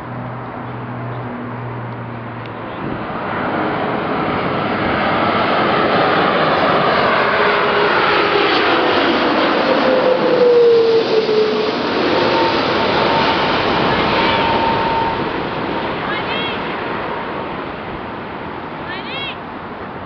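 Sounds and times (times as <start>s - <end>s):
jet engines howling overhead: 0.0s - 20.0s.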